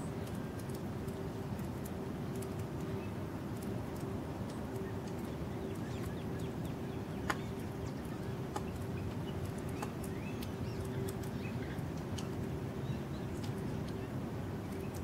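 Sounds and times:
faint hum: 0:00.0 - 0:15.0
songbirds chip calls: 0:04.4 - 0:15.0.

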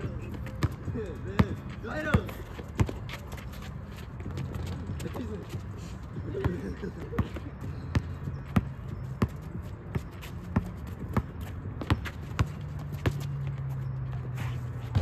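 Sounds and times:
basketball dribbling: 0:07.2 - 0:15.0.

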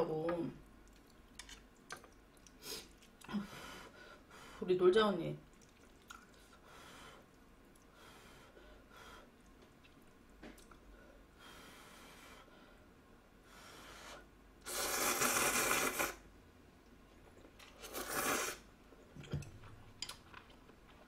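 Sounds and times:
person slurping noodles: 0:14.6 - 0:16.2, 0:17.7 - 0:18.7.

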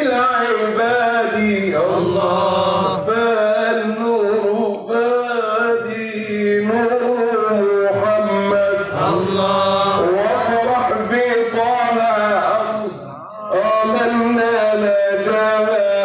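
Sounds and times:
man singing: 0:00.0 - 0:16.0.

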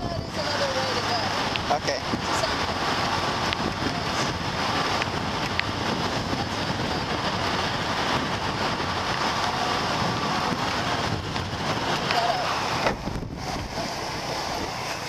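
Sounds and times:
motorbike engine running: 0:00.0 - 0:15.0
wind on microphone: 0:00.0 - 0:15.0.

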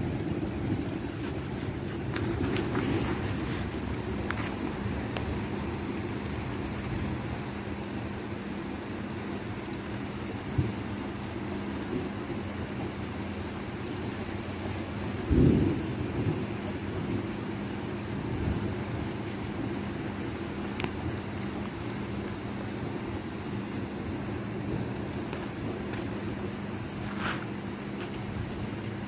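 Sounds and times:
thunder rumbling: 0:00.0 - 0:07.8, 0:14.8 - 0:29.0
steady rain: 0:00.0 - 0:29.0.

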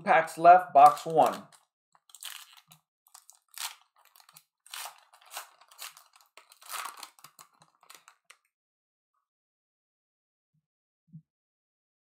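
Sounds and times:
foil wrapper tearing and crinkling: 0:00.8 - 0:08.4.

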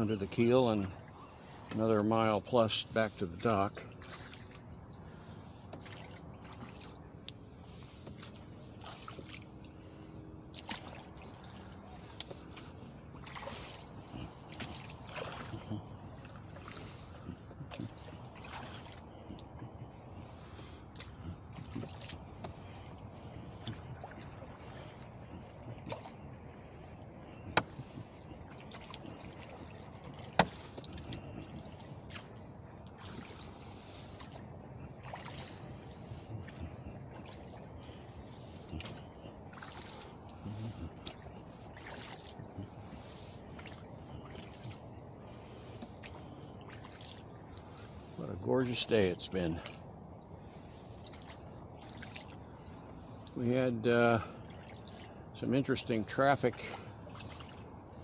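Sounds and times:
faint water trickling: 0:00.0 - 0:58.0
low steady rumble: 0:00.0 - 0:58.0
oars dipping in water: 0:00.0 - 0:58.0
small splashes: 0:02.9 - 0:58.0
oar clicks: 0:13.6 - 0:20.0, 0:23.6 - 0:24.2, 0:27.2 - 0:32.3, 0:38.0 - 0:39.4.

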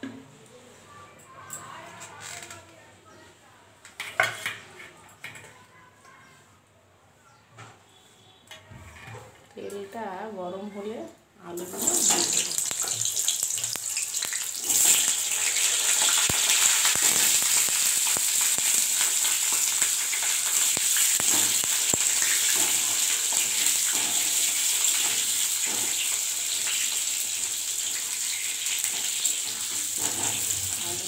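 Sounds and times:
potatoes sizzling in hot oil: 0:11.6 - 0:31.0.

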